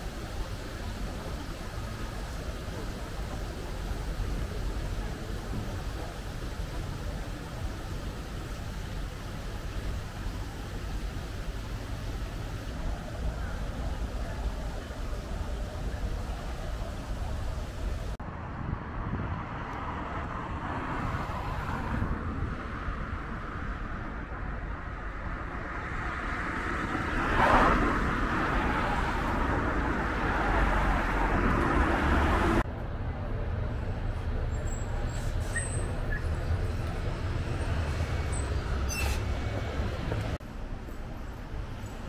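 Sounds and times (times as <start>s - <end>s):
road traffic: 0.0s - 42.0s.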